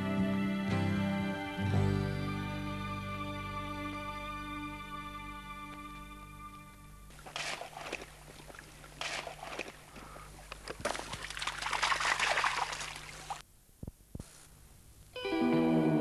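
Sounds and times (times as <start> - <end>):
dog splashing through water: 7.1 - 13.4.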